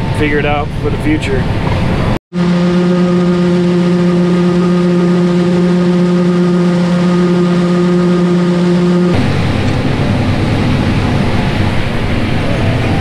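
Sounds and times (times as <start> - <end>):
combine harvester humming: 1.4 - 13.0.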